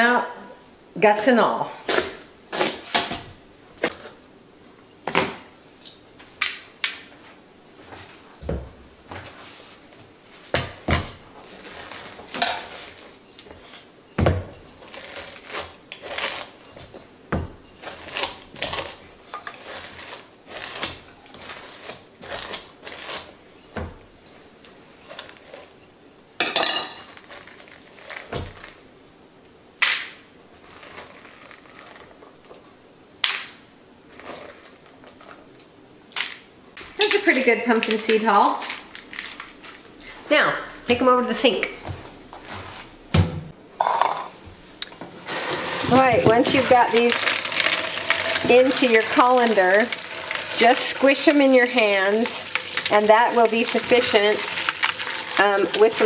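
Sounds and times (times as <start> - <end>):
scraping pumpkin pulp: 14.7 - 16.9, 17.8 - 23.4, 45.3 - 56.0.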